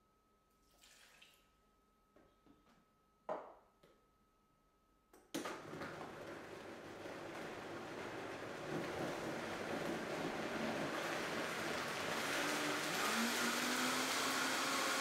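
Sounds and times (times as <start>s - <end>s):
water pouring into blender jar: 0.6s - 1.4s, 8.6s - 15.0s
blender motor running: 6.1s - 15.0s.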